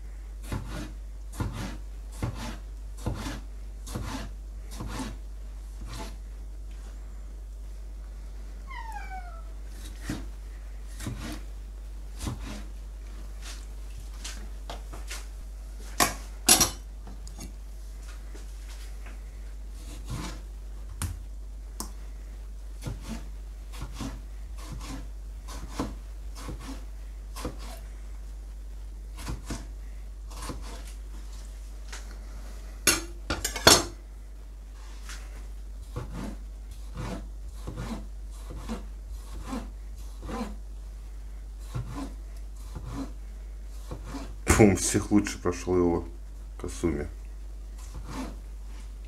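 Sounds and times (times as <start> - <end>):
cat meowing: 8.6 - 9.6.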